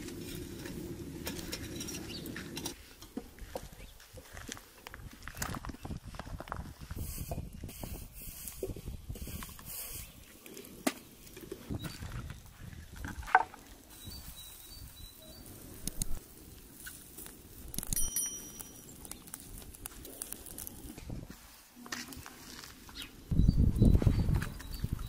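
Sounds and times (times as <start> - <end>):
faint high bird chirps: 13.9 - 15.6.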